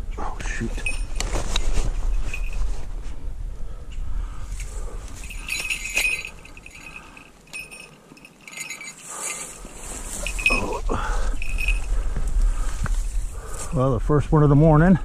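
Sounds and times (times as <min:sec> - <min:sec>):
small metal bells jingling: 0:00.6 - 0:02.8, 0:04.6 - 0:12.1
rustling scuffle: 0:00.8 - 0:03.2, 0:04.6 - 0:13.2.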